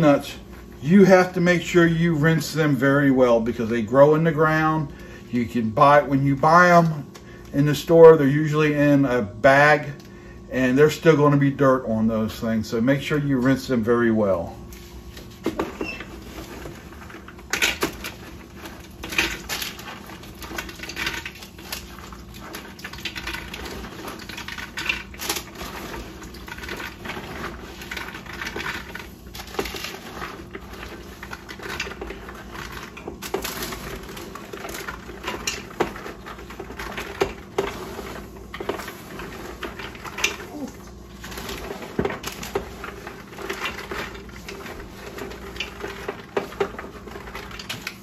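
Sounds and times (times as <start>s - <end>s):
peanuts clattering into pot: 15.5s - 48.0s.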